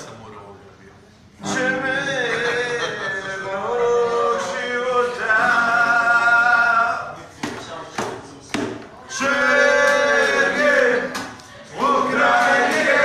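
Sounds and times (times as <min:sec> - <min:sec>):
men singing long held notes: 0:09.1 - 0:13.0.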